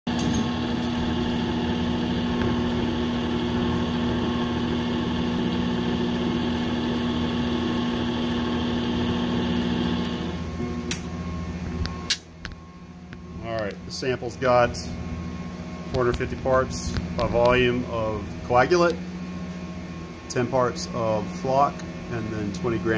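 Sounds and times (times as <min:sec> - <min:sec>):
stirrer motor humming: 0:00.1 - 0:11.3.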